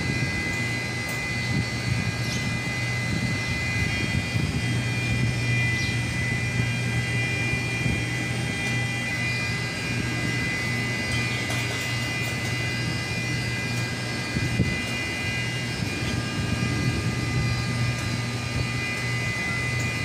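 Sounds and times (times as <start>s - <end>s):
high-pitched whine: 0.0s - 20.0s
low machinery hum: 0.0s - 20.0s.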